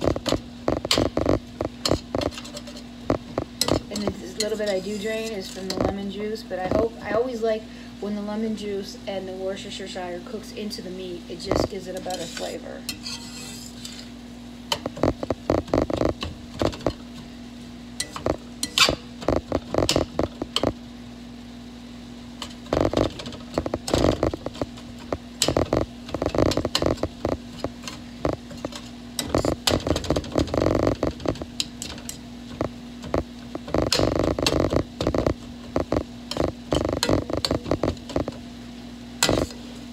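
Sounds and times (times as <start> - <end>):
low hum: 0.0 - 4.5, 14.8 - 17.3, 18.0 - 38.6
spatula scraping a skillet: 3.6 - 5.9, 11.5 - 14.2.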